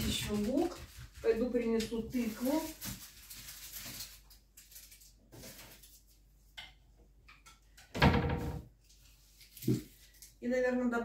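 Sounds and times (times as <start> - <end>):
kitchen items knocking and clicking: 0.0 - 3.0, 6.6 - 8.7.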